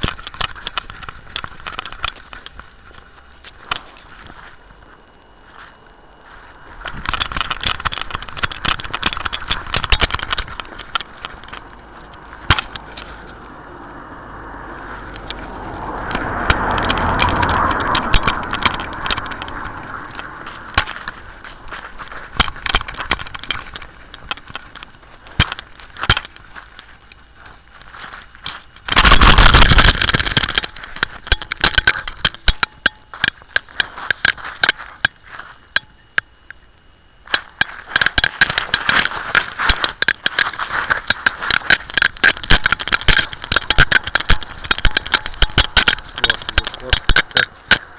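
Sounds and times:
camera rubbing and rattling: 0:00.0 - 0:47.9
loud rush of noise: 0:10.6 - 0:22.5
car passing: 0:11.6 - 0:21.7.

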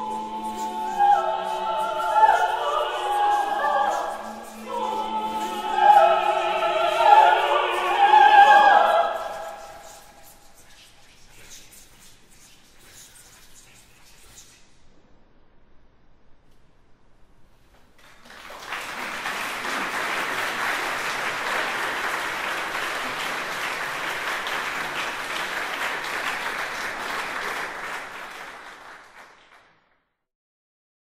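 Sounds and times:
audience applause: 0:18.0 - 0:29.7.

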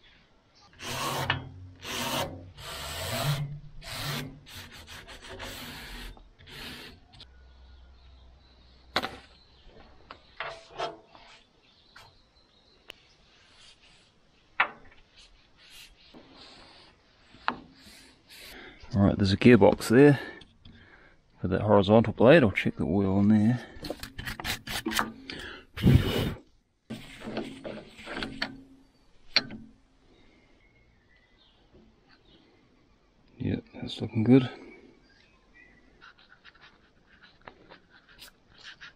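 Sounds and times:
brushing scrapes: 0:13.0 - 0:18.8, 0:25.8 - 0:28.4, 0:35.9 - 0:38.9.

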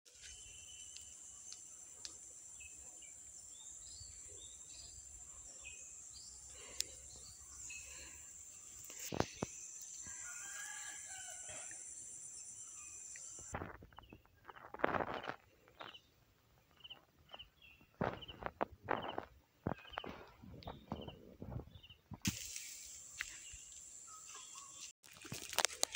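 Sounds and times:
high-pitched insect drone: 0:07.6 - 0:13.6
bird chirps: 0:16.7 - 0:22.0.

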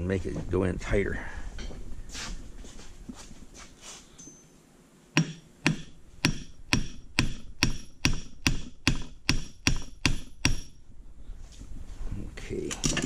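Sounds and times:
hammer striking steel pin: 0:05.2 - 0:10.8.

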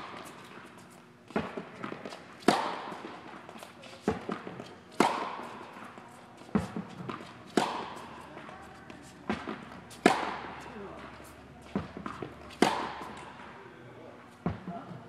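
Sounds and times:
tennis ball cracking off racket: 0:01.3 - 0:08.2, 0:09.0 - 0:13.5
ball bouncing on hard court: 0:01.3 - 0:13.5, 0:14.4 - 0:14.7.

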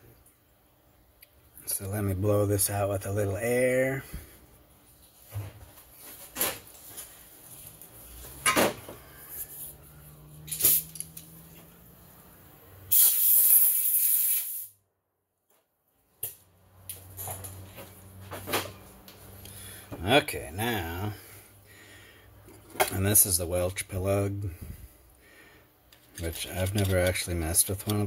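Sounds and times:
compressed air hissing: 0:10.4 - 0:11.1, 0:12.9 - 0:14.8
parts knocking and clicking: 0:25.9 - 0:28.0.

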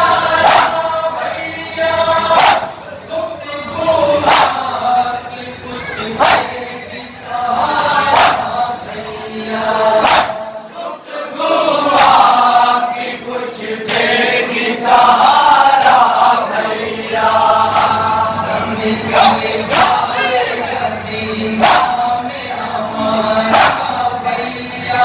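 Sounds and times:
men chanting a lament: 0:00.0 - 0:25.0
hands slapping chests: 0:17.7 - 0:18.0.

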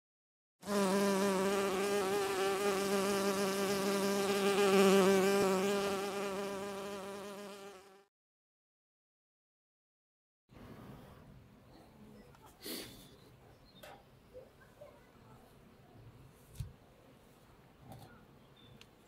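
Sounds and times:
bee buzzing: 0:00.6 - 0:08.1.

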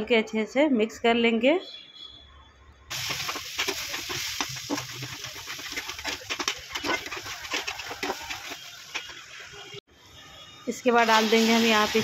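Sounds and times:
food sizzling in oil: 0:02.9 - 0:09.8, 0:10.7 - 0:12.0
metal spatula scraping a pan: 0:02.9 - 0:09.8.

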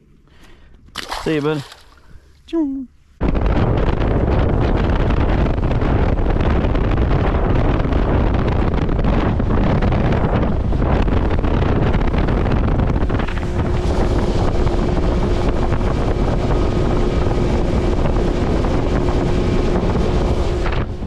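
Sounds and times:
boat motor droning: 0:03.0 - 0:21.0
wind buffeting microphone: 0:03.1 - 0:21.0.

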